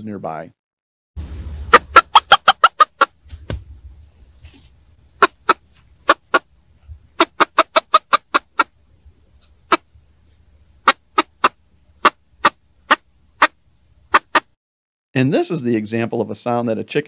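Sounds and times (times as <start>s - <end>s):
chicken alarm clucking: 1.6s - 8.8s, 9.4s - 10.0s, 10.8s - 14.5s.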